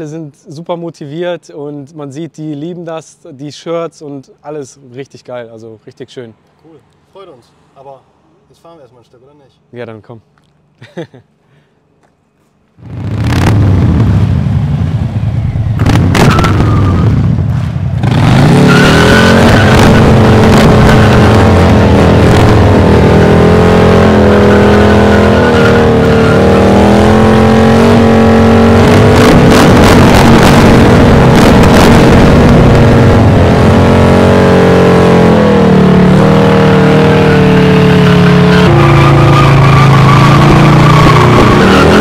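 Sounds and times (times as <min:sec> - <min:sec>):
motorcycle engine revving: 0:12.8 - 0:42.0
rear tyre spinning in burnout: 0:12.8 - 0:42.0.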